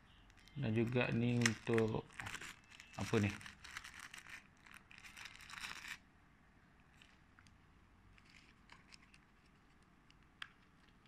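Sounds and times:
packaging crinkling and rustling: 0:00.3 - 0:06.0.

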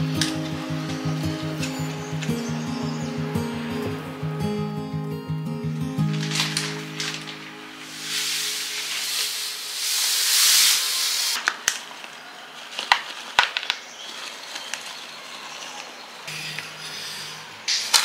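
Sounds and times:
plastic bag rustling: 0:06.0 - 0:16.2.

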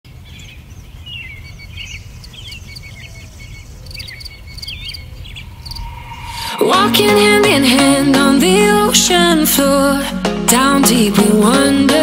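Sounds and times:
birds chirping: 0:00.1 - 0:06.6
steady low rumble: 0:00.2 - 0:08.8
insects trilling: 0:01.1 - 0:06.5.

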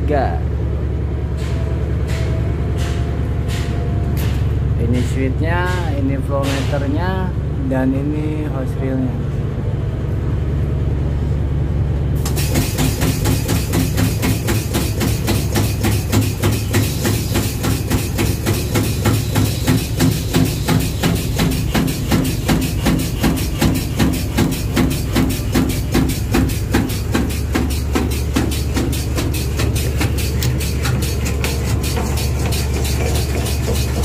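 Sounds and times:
rhythmic mechanical knocks: 0:01.2 - 0:07.1, 0:12.2 - 0:34.0
pump low hum: 0:11.6 - 0:34.0.

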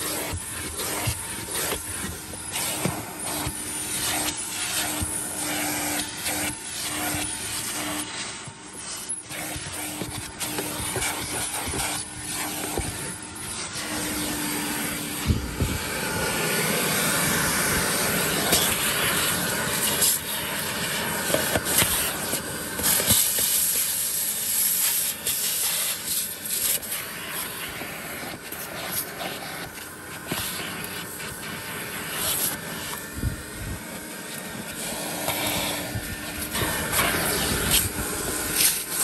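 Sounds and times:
vacuum cleaner running: 0:00.0 - 0:39.0.

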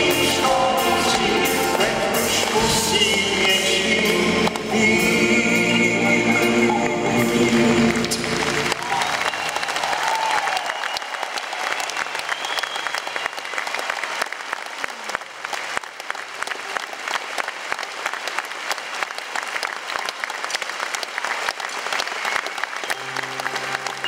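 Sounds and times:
music: 0:00.0 - 0:09.9, 0:22.7 - 0:24.0
audience applauding: 0:00.0 - 0:24.0.

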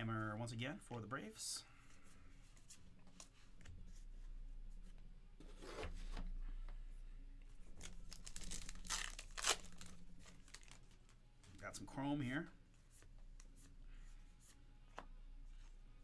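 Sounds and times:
cards rustling: 0:07.7 - 0:11.1
wrapper tearing open: 0:07.8 - 0:10.9.

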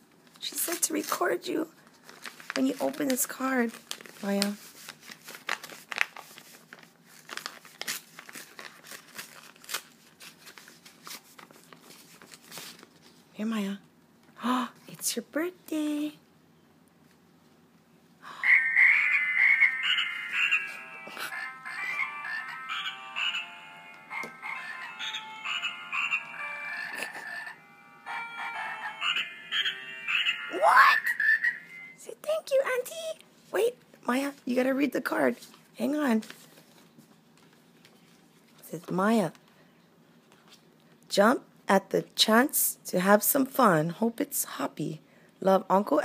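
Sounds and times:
paper crinkling and tearing: 0:01.8 - 0:13.2.

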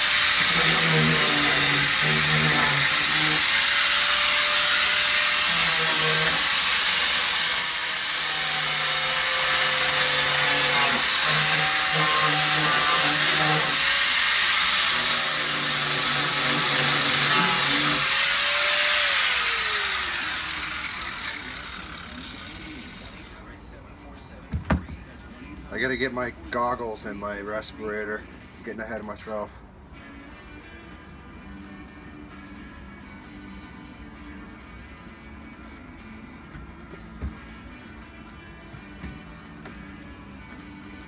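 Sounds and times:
electric power tool whining: 0:00.0 - 0:23.4.

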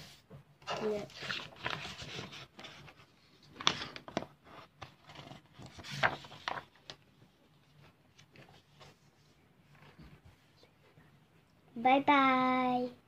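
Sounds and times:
paper rustling and scraping: 0:00.0 - 0:10.4.

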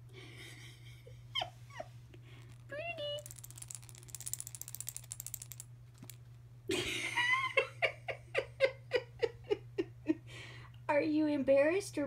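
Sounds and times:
toy rustling: 0:02.3 - 0:06.3.

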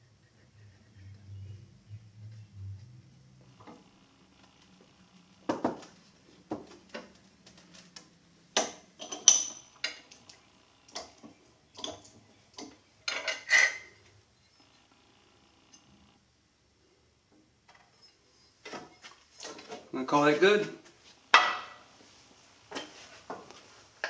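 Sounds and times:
small metal parts clinking: 0:08.6 - 0:10.3.

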